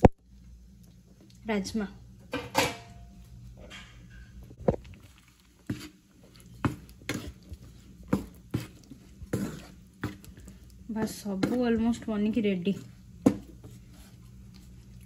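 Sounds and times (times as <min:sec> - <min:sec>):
spatula stirring thick gravy: 0:05.0 - 0:15.0.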